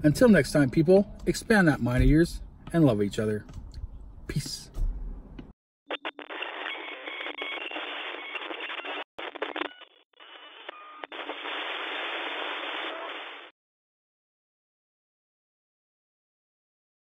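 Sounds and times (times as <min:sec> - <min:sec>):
radio static hiss: 0:05.9 - 0:13.5.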